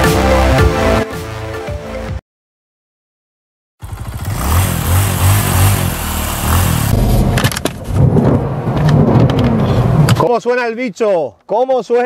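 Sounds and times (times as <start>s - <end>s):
car engine revving: 3.8s - 10.1s
exhaust pops: 3.8s - 10.3s.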